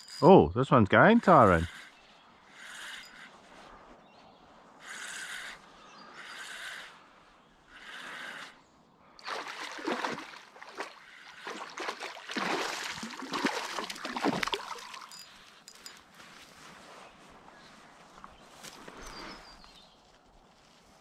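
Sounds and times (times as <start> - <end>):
fish thrashing and splashing: 9.2 - 15.3.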